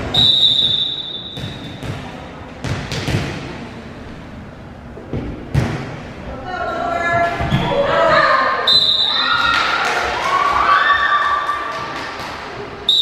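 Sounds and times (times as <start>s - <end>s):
referee's whistle: 0.1s - 1.6s, 8.7s - 9.3s
volleyball thumping on gym floor: 0.6s - 3.6s, 5.1s - 6.0s.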